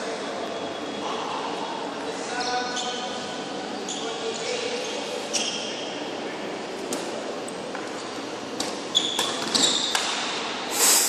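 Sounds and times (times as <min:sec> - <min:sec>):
shoes squeaking on court: 0:02.4 - 0:03.1, 0:03.9 - 0:05.9, 0:07.8 - 0:10.4.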